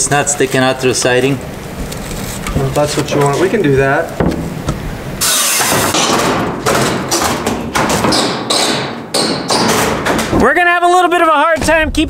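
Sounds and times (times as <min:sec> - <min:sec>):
tool scraping and thudding on wood: 0:04.2 - 0:10.5.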